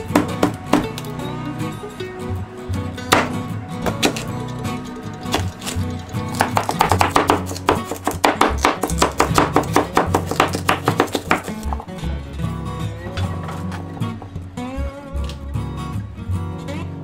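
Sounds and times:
background music: 0.0 - 17.0
knife chopping on plastic board: 0.1 - 1.1, 3.1 - 4.3, 5.3 - 11.8.

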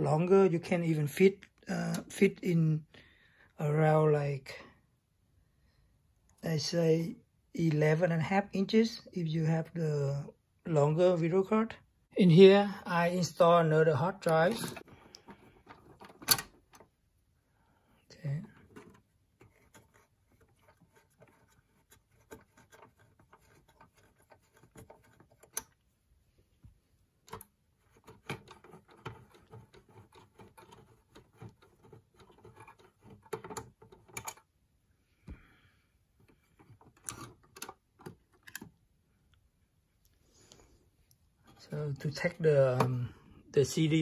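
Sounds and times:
hard drive handling clicks and scrapes: 27.3 - 34.4.

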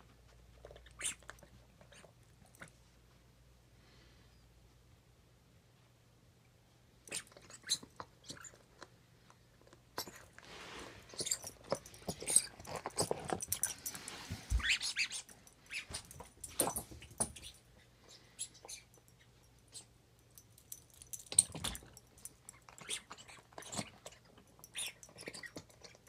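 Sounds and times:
dog chewing on a toy: 7.1 - 19.8, 20.8 - 26.0.

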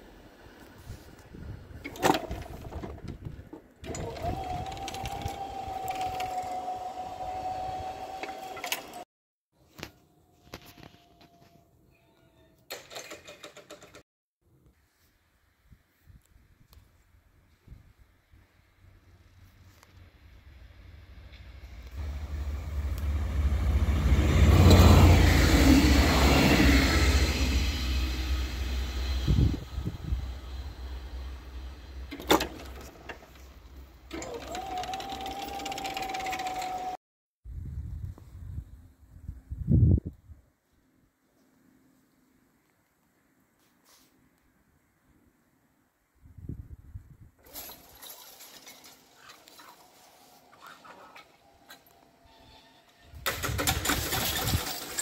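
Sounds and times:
barrier motor whining: 3.8 - 9.0, 21.9 - 37.0
train wheels rumbling on rails: 21.2 - 33.4.

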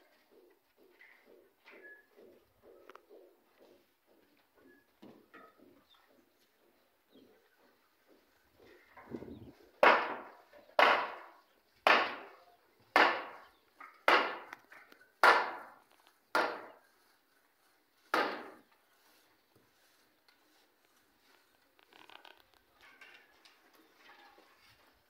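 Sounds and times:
hammer striking wooden boards: 9.8 - 12.3, 12.9 - 16.8, 18.1 - 18.6.

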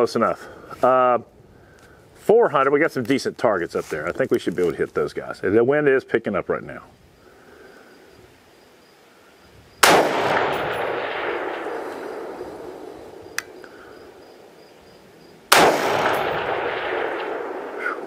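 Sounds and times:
rifle shot with long echo: 9.8 - 14.5, 15.5 - 18.0
small sharp click: 13.3 - 13.6.

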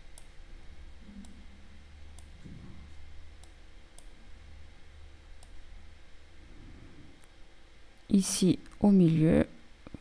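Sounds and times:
low steady hum: 0.0 - 10.0
computer mouse clicks: 0.1 - 0.4, 1.1 - 1.5, 2.1 - 4.2, 5.4 - 5.6.

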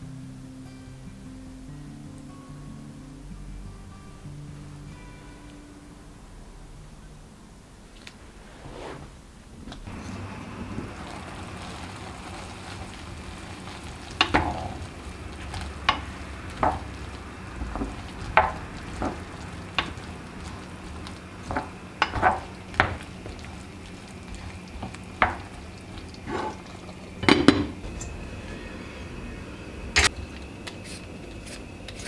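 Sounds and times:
food sizzling: 8.0 - 32.0
spoon scraping a pan: 11.0 - 27.7.

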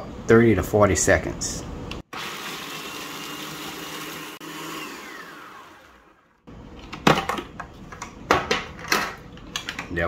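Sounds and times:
food processor motor whine: 2.1 - 6.5.

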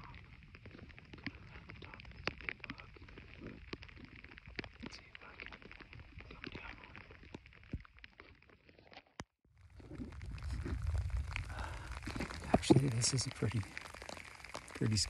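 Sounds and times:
rain pattering on a jacket: 0.0 - 8.6, 9.5 - 15.0.

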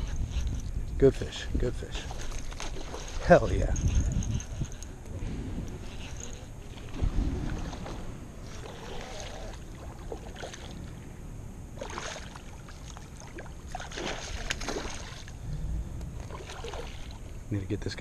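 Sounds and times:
low wind rumble on microphone: 0.0 - 11.8, 12.4 - 18.0
fish splashing at water surface: 11.8 - 15.4, 16.3 - 17.2.

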